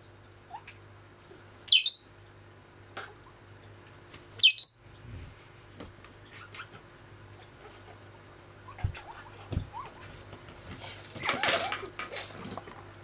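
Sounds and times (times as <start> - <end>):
bird squawking shrilly: 4.4 - 4.8.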